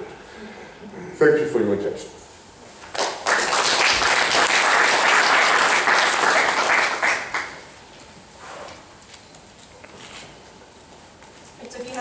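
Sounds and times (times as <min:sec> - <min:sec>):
audience applauding: 0:02.9 - 0:07.7.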